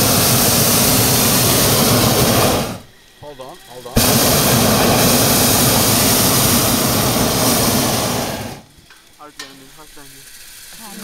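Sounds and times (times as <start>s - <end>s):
propane burner roaring: 0.0s - 11.0s.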